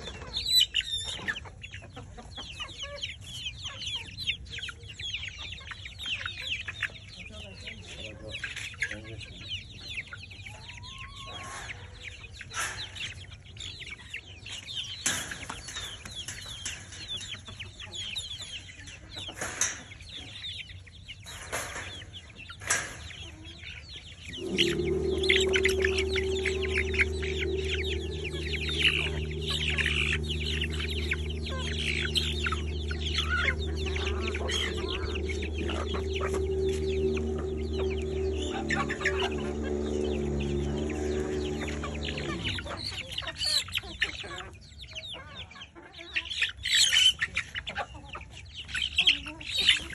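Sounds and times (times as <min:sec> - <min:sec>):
chickens clucking: 0:00.0 - 0:49.9
low hum of held tones: 0:09.0 - 0:44.4.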